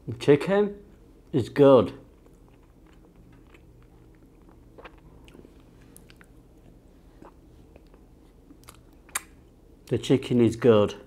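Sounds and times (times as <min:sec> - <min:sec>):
low room hum: 0:00.0 - 0:11.0
person chewing: 0:02.1 - 0:09.5.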